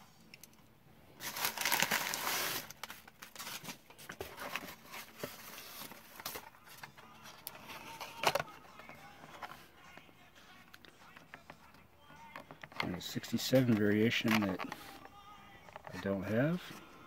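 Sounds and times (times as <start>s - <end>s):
tissue paper rustling and crinkling: 1.2s - 8.4s.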